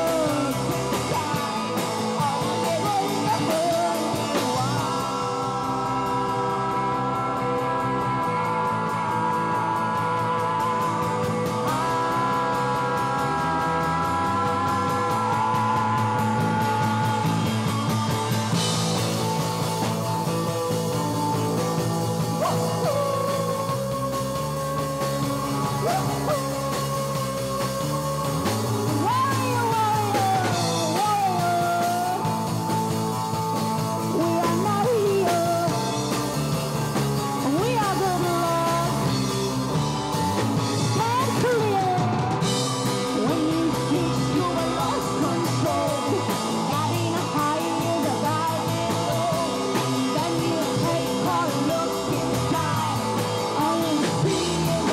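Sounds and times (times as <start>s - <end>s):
bending lead melody: 0.0s - 54.9s
rock band playing live: 0.0s - 54.9s
steady bass line: 0.0s - 54.9s.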